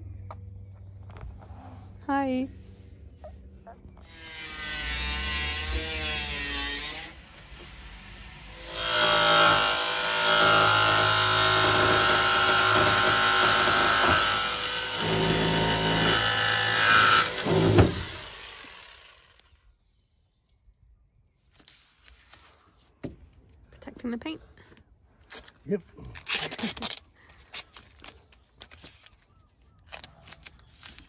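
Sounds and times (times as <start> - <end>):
power tool cutting sheet steel: 4.0 - 19.6.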